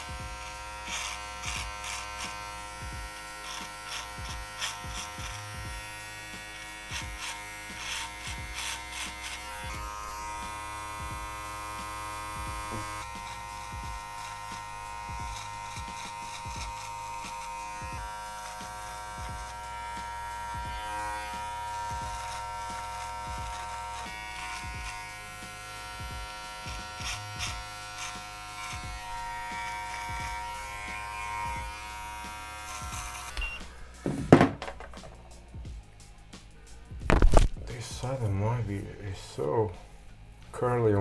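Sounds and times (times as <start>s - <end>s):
electric beard trimmer: 0.0s - 34.0s
loud knock: 34.0s - 35.2s.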